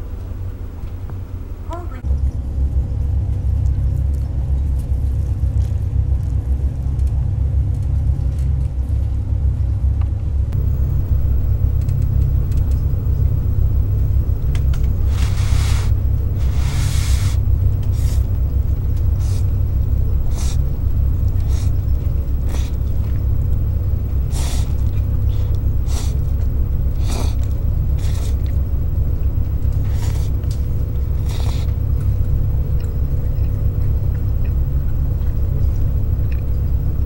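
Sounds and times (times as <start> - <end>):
ferry engines rumbling: 10.5 - 37.0
noodles being slurped: 31.2 - 31.7.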